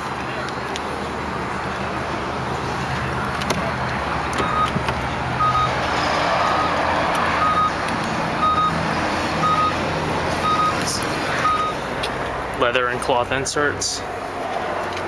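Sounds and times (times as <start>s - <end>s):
car warning chime beeping: 4.4s - 4.8s, 5.4s - 5.8s, 6.4s - 6.7s, 7.4s - 7.8s, 8.4s - 8.8s, 9.4s - 9.8s, 10.4s - 11.8s.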